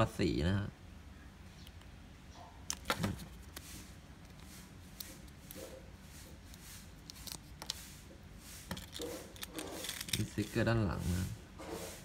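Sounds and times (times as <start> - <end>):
paper sticker sheet rustling: 2.7 - 11.2.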